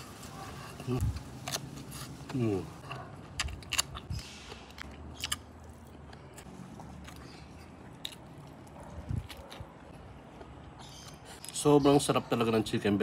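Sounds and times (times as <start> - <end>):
person chewing: 0.6 - 11.6
person biting crisp pepper: 3.2 - 7.3.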